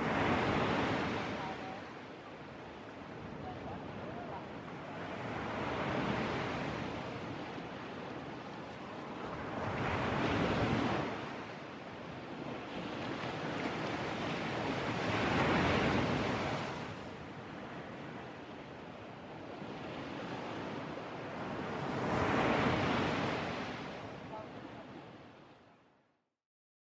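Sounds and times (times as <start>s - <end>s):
sea surf breaking on beach: 0.0s - 25.6s.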